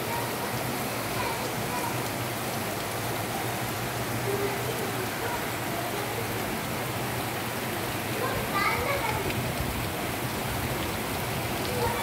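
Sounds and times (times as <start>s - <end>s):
heavy rain on rooftops and street: 0.0s - 12.0s.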